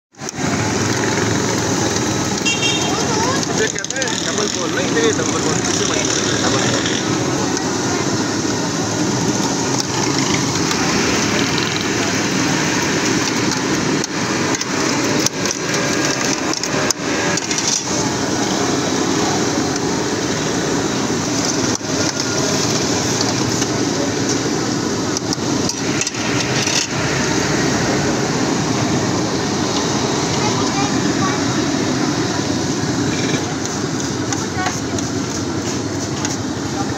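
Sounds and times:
street traffic: 0.1 - 36.9
voices: 0.2 - 36.9.

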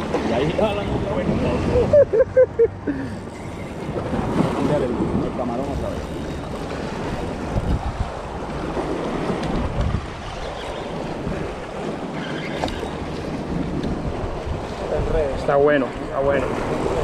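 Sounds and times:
wind buffeting microphone: 0.0 - 17.0
waves washing against rocks: 3.7 - 17.0.

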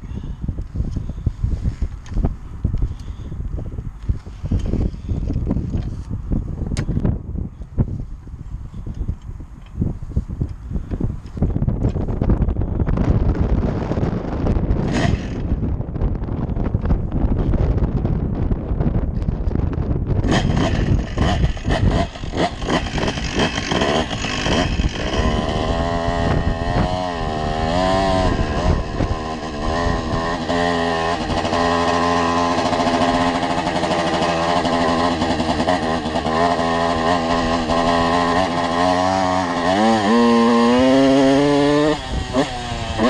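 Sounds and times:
two-stroke engine revving: 14.8 - 15.7, 20.2 - 43.0.

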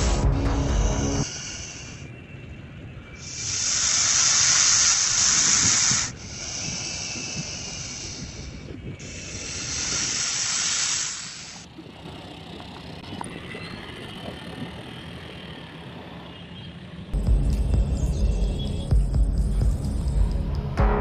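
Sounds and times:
snake hissing: 0.7 - 2.2, 3.2 - 11.7.

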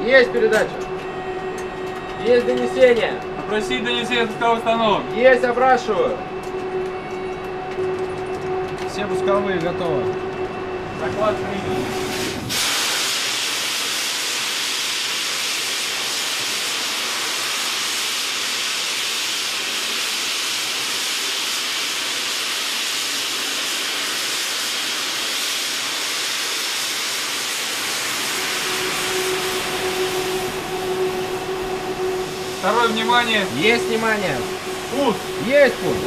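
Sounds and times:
steady high hiss: 12.2 - 36.0.

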